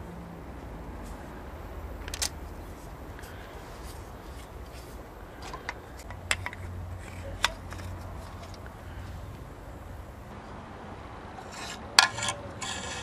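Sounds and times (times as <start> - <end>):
low steady hum: 0.0 - 13.0
metal and plastic parts clicking: 2.0 - 2.4, 3.2 - 8.8.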